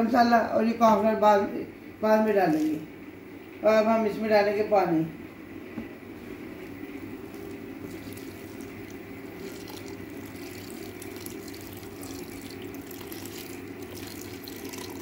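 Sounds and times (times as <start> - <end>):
water pouring and splashing: 7.9 - 15.0.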